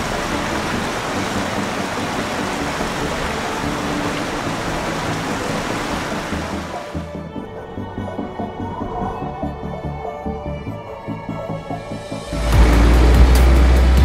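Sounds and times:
rushing water: 0.0s - 7.4s, 12.0s - 14.0s.

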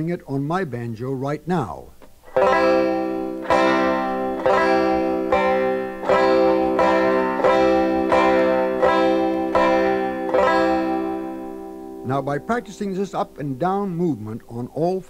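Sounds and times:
banjo strumming chords: 2.2s - 14.7s.

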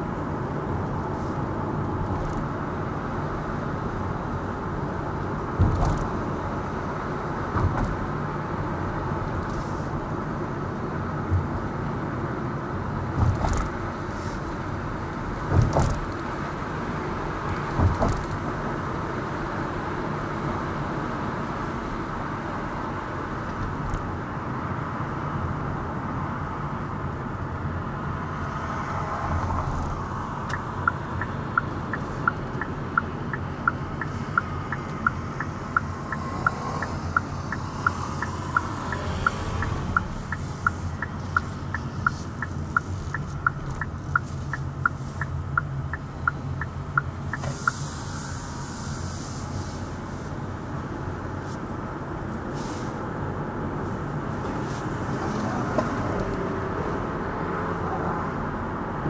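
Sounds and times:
road and engine noise in a car: 0.0s - 59.0s
turn signal ticking: 29.6s - 48.4s.

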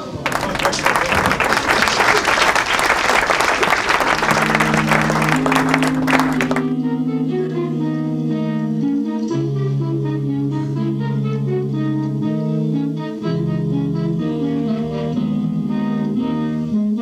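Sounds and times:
audience applauding: 0.0s - 6.8s
music with held notes: 3.8s - 17.0s.

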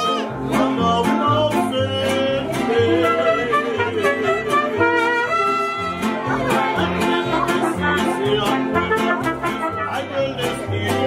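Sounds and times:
mariachi band playing: 0.0s - 11.0s.

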